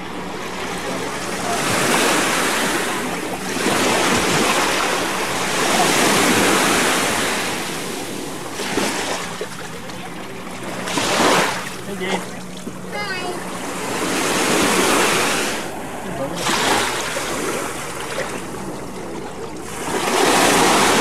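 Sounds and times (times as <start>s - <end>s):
small waves washing onto beach: 0.0s - 21.0s.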